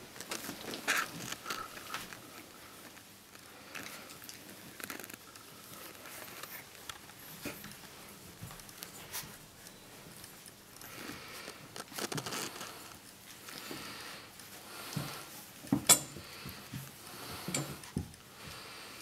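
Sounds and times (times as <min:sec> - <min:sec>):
puppies scuffling and crawling: 0:00.0 - 0:19.0.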